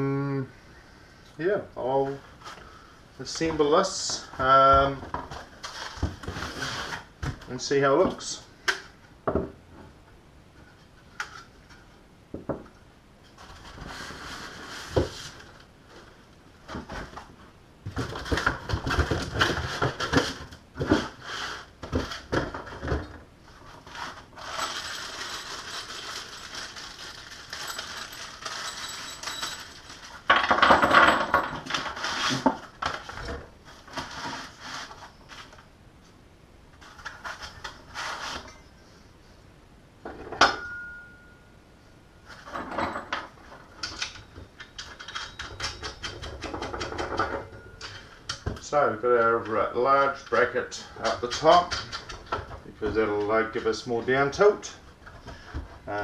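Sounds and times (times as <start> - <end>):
continuous rustling: 13.2 - 39.2
metal hardware clinking: 24.4 - 31.8.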